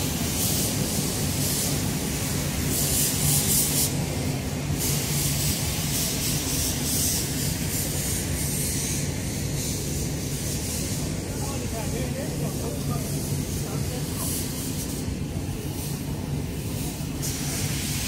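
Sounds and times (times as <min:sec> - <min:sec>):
hiss: 0:00.0 - 0:18.0.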